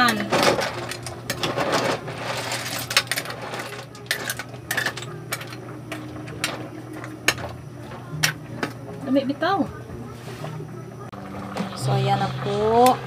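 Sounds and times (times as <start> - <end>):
ladle stirring shells in metal pot: 0.0 - 7.6.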